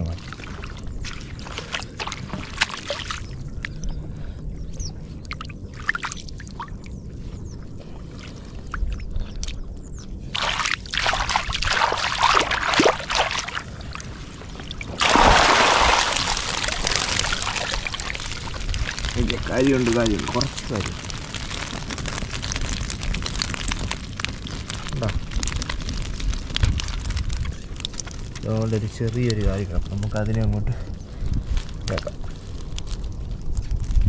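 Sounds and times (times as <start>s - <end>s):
water dripping and splashing: 0.0s - 3.8s, 5.2s - 6.9s, 10.3s - 30.6s
water pouring rush: 10.3s - 30.6s.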